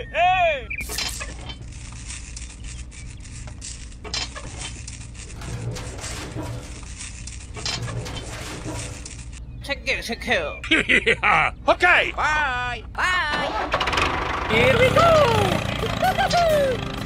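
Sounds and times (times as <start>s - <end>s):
rustling of twine and cloth: 1.1s - 9.4s.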